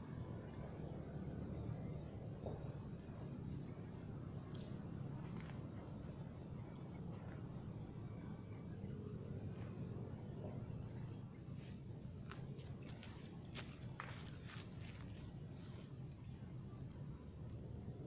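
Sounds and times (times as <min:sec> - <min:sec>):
low outdoor rumble: 0:00.0 - 0:18.0
bird chirping: 0:04.2 - 0:04.6, 0:09.2 - 0:09.7.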